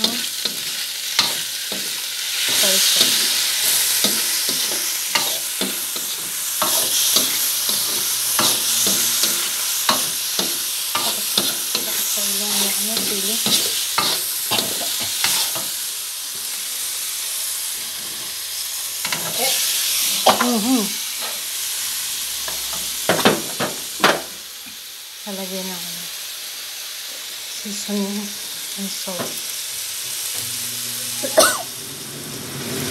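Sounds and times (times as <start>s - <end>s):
metal spatula scraping a wok: 0.0s - 15.7s
food sizzling in a wok: 0.0s - 32.9s.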